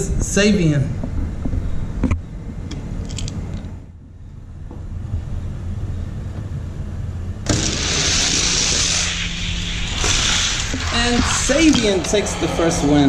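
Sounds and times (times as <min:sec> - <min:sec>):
toy cars handled with clicks: 0:03.0 - 0:03.4.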